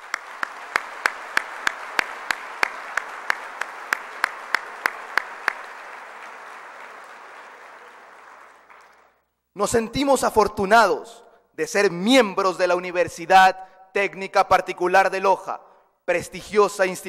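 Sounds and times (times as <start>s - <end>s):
audience applauding: 0.0s - 9.3s
close hand claps: 0.0s - 9.3s.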